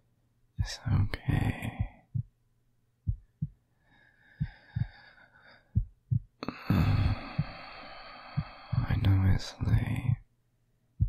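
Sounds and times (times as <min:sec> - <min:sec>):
slow heartbeat: 0:01.4 - 0:02.4, 0:03.0 - 0:03.6, 0:04.4 - 0:10.3
soft breathing: 0:03.1 - 0:10.1.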